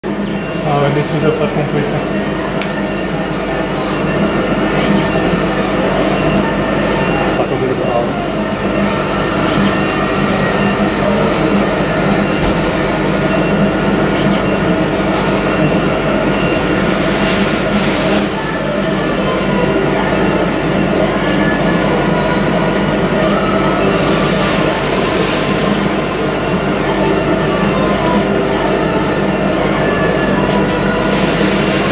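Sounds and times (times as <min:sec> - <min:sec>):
laser engraver humming: 0:00.0 - 0:31.9.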